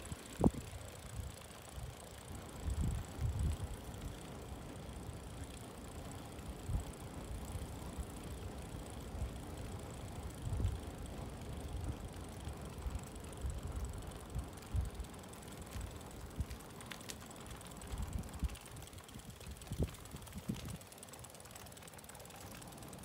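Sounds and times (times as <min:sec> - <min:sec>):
wind rumbling on microphone: 0:00.0 - 0:04.2, 0:10.2 - 0:15.0, 0:15.7 - 0:20.9
bicycle tyres hissing on wet road: 0:00.0 - 0:23.0.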